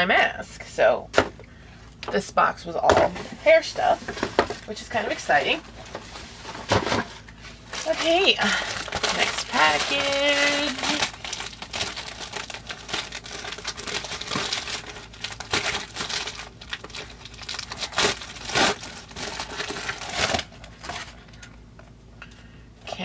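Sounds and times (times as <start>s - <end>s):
packaging crinkling and rustling: 3.1s - 21.9s.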